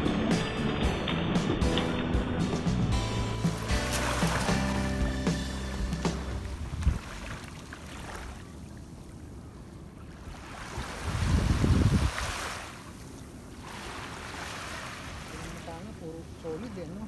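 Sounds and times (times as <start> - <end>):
small waves lapping on sand: 3.4 - 17.0.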